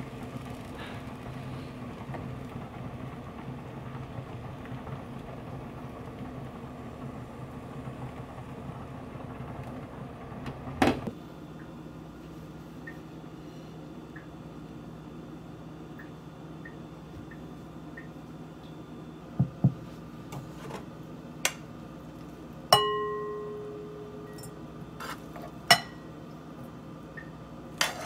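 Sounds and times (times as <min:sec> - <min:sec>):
egg cooking in frying pan: 0:00.0 - 0:11.2
steady low hum: 0:00.0 - 0:28.0.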